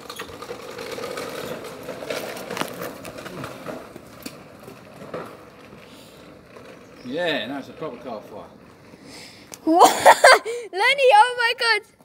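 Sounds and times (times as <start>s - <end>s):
sharp crackles: 0.0s - 9.7s
electric go-kart motor hum: 0.0s - 10.8s.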